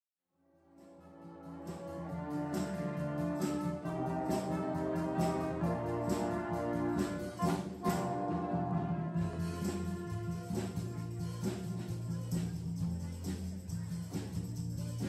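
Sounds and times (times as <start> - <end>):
jazz big band playing: 0.9 - 13.7
sharp percussion strokes: 1.8 - 8.3.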